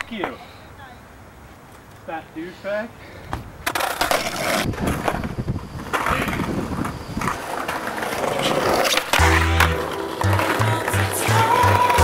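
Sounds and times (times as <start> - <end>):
skateboard wheels rolling on pavement: 0.0 - 12.0
wind on microphone: 4.6 - 7.5.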